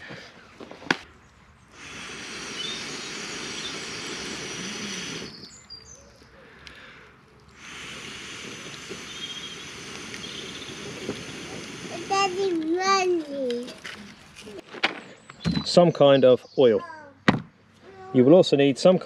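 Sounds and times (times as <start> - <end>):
faint bird chirps: 1.2 - 6.6, 8.5 - 11.6
person blowing on embers: 1.6 - 14.6.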